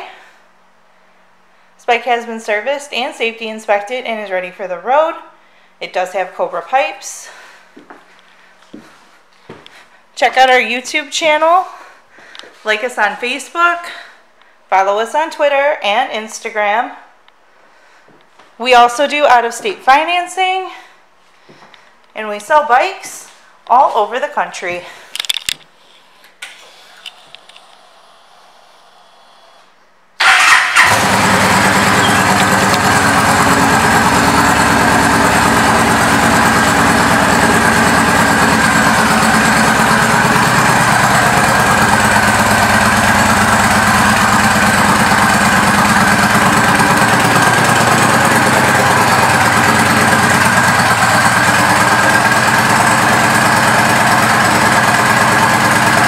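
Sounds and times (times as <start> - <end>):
motorcycle engine starting and idling: 26.4 - 56.0.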